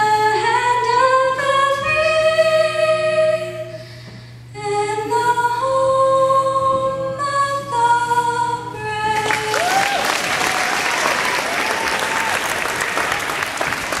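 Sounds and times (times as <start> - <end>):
woman singing: 0.0 - 3.8, 4.6 - 9.6
whoops: 9.2 - 13.6
crowd applause and cheering: 9.2 - 14.0.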